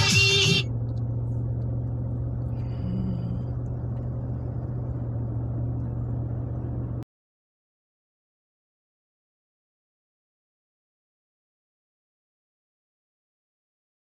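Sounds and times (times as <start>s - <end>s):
car interior road drone: 0.0s - 7.1s.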